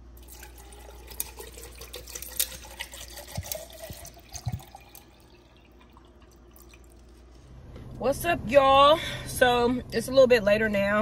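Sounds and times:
ice cubes clicking: 0:00.2 - 0:05.1
water pouring into a metal cup: 0:00.2 - 0:07.4.

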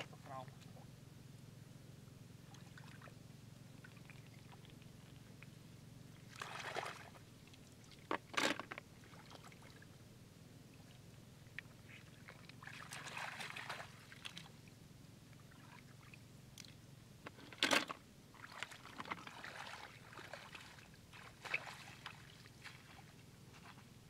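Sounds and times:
shallow water splashing: 0:02.4 - 0:05.3, 0:06.2 - 0:08.4, 0:09.0 - 0:09.9, 0:11.7 - 0:14.7, 0:18.3 - 0:23.2.

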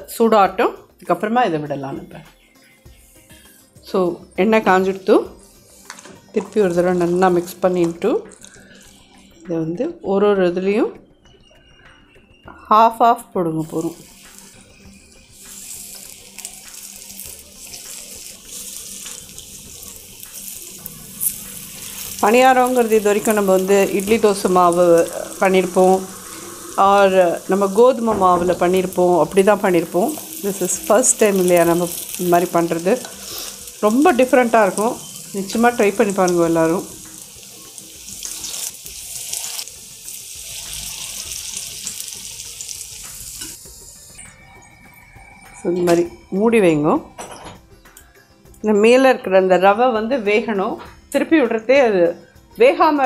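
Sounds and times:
batter sizzling in hot oil: 0:04.8 - 0:07.7, 0:13.6 - 0:44.2.

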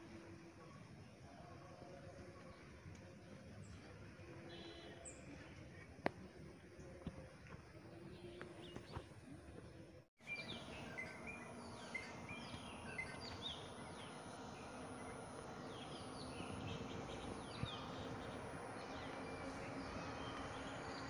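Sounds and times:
outdoor background hiss: 0:00.0 - 0:21.0
small birds chirping: 0:10.2 - 0:21.0.

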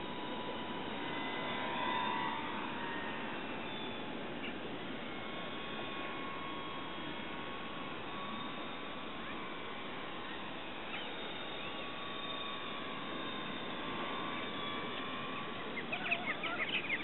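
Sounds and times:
model plane engine droning: 0:00.0 - 0:17.0
squawking bird calls: 0:10.2 - 0:12.0, 0:14.9 - 0:17.0.

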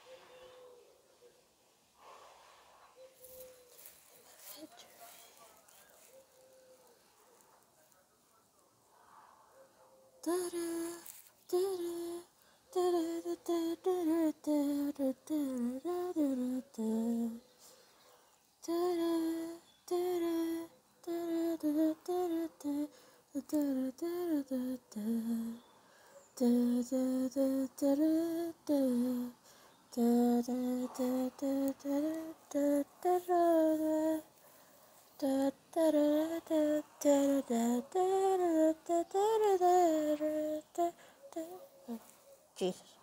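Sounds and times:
child singing wordless tune: 0:10.2 - 0:17.5, 0:18.6 - 0:25.8, 0:26.4 - 0:34.3, 0:35.2 - 0:42.8.

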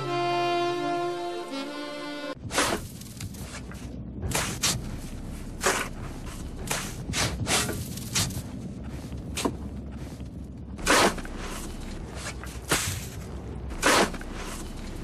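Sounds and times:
shovels scraping snow: 0:02.5 - 0:04.8, 0:10.8 - 0:15.0.

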